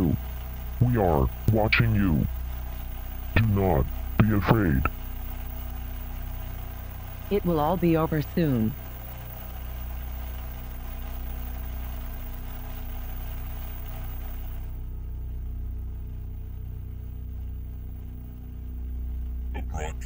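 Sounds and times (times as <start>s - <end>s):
tv static hiss: 0.0s - 14.8s, 19.6s - 20.0s
low droning hum: 0.0s - 20.0s.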